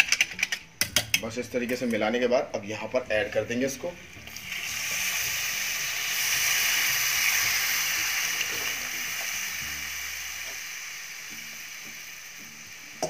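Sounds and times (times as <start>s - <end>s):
batter sizzling in hot oil: 3.1s - 13.0s.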